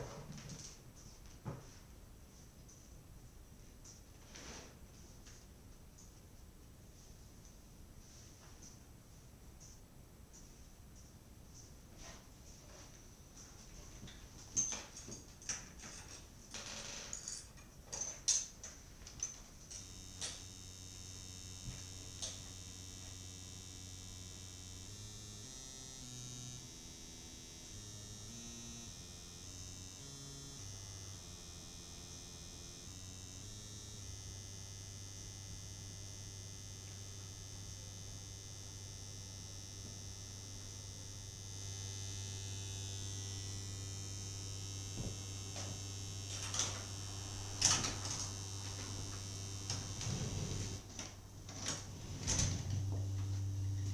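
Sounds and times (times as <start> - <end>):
electronic drone with whine: 19.7 - 50.9, 51.5 - 53.9.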